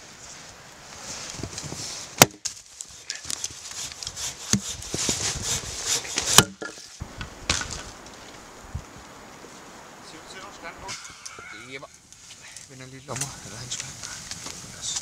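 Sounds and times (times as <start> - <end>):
wood knocking and rustling: 1.3 - 8.4
axe chopping firewood: 2.2 - 2.6, 4.4 - 5.1, 5.9 - 6.9.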